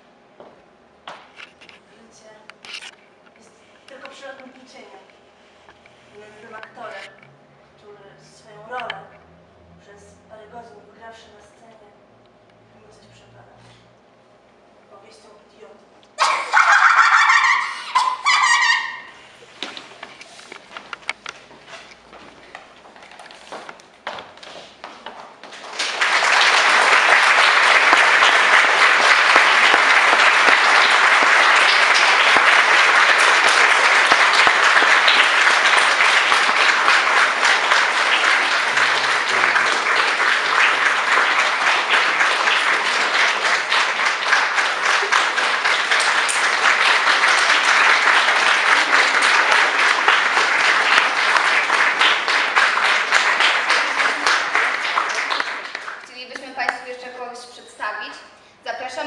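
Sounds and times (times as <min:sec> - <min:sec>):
audience applauding: 0:25.4 - 0:56.4.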